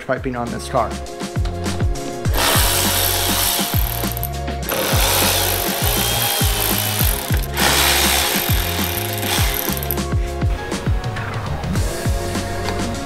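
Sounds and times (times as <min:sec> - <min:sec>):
background music with steady beat: 0:00.0 - 0:13.0
cordless electric ratchet running: 0:02.3 - 0:10.0.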